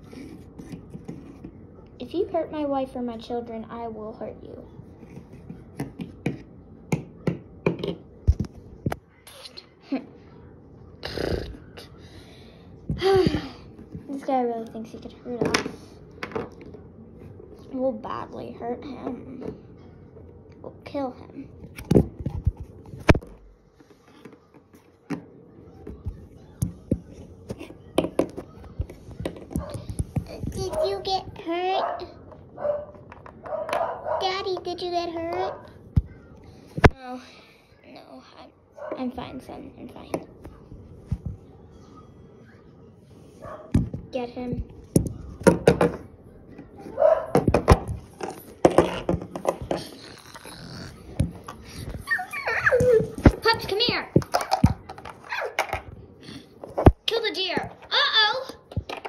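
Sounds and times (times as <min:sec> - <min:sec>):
plastic toys knocking on wooden table: 0:45.0 - 0:46.0
plastic toys clacking on wooden table: 0:54.1 - 0:55.9.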